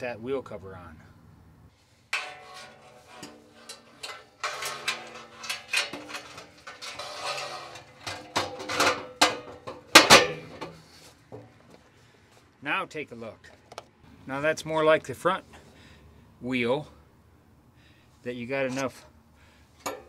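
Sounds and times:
metal wheel cover clanking: 2.1s - 11.5s, 19.8s - 20.0s.

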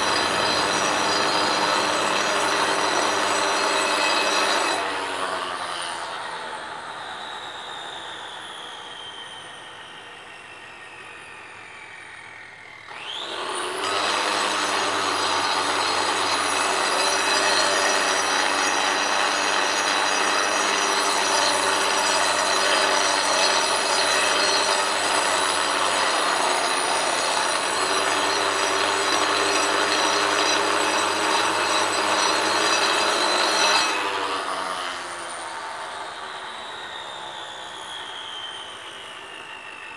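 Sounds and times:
angle grinder cutting stone: 0.0s - 6.8s, 12.9s - 36.4s.

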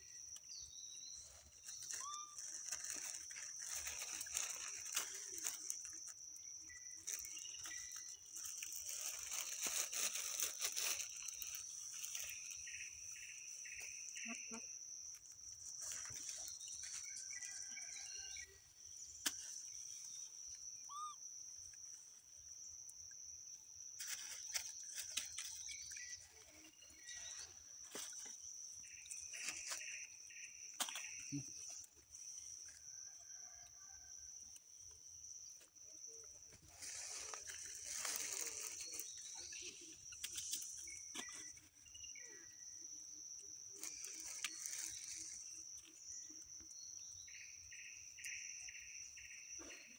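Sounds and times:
monkeys rustling on leaves: 1.2s - 6.1s, 7.0s - 13.0s, 36.6s - 40.8s, 43.8s - 45.4s.

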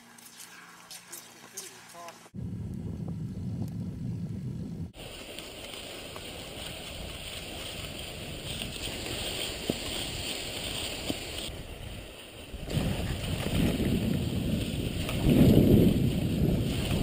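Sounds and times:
low rumble: 2.4s - 5.0s
wind on microphone: 2.4s - 17.0s
skis swishing on snow: 5.0s - 17.0s.

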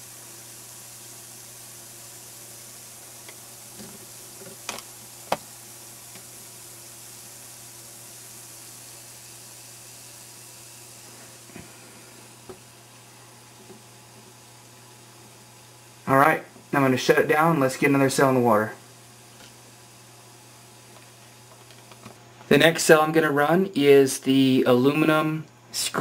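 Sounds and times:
fizzing hiss of gas bubbles: 0.0s - 23.2s
low steady hum: 0.0s - 26.0s.

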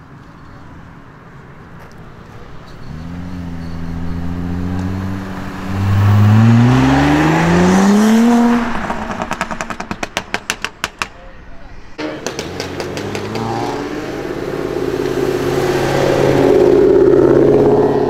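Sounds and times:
car engine accelerating hard: 2.9s - 10.2s, 12.2s - 18.0s.

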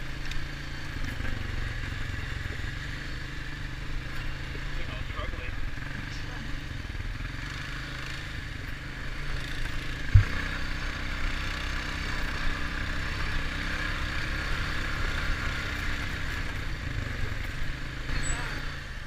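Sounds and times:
atv engine rumbling: 0.0s - 19.0s
sharp thump: 10.1s - 10.6s.

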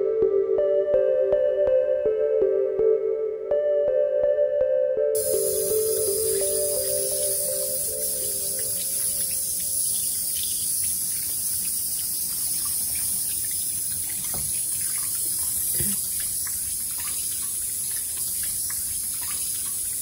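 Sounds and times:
tap water running into sink: 5.2s - 20.0s
small water splashes: 8.4s - 20.0s.

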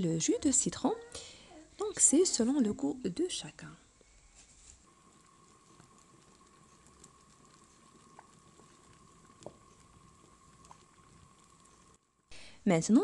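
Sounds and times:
spoon stirring soup in a pot: 5.1s - 12.0s.

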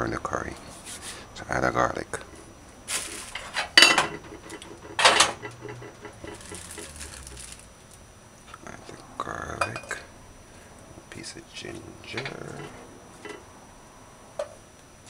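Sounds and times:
dishes and utensils clattering: 3.0s - 7.2s.

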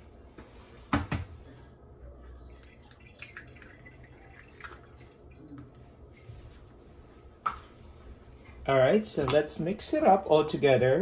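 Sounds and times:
egg dripping into bowl: 2.6s - 5.8s.

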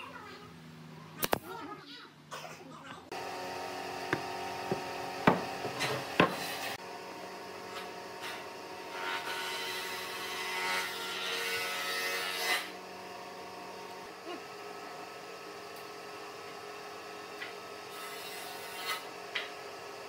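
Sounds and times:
wood pieces knocking on workbench: 4.1s - 6.5s.

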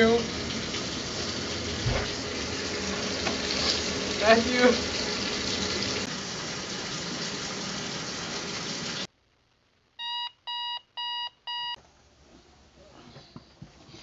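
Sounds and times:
running water hiss: 0.0s - 9.1s
alarm clock beeping: 10.0s - 11.8s.

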